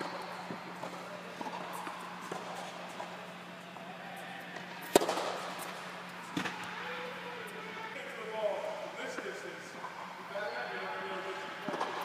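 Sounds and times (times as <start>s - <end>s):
steady low hum: 0.0s - 12.0s
racquet striking tennis ball: 4.8s - 5.8s.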